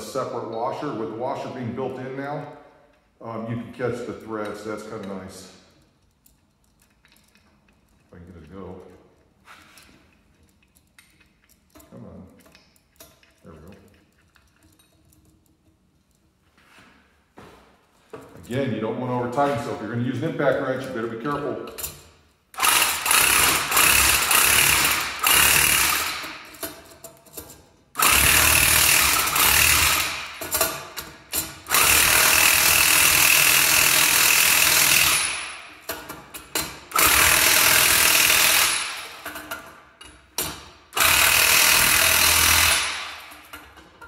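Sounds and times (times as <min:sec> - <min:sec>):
impact wrench bursts: 0:22.5 - 0:26.9, 0:28.0 - 0:39.7, 0:40.4 - 0:43.8.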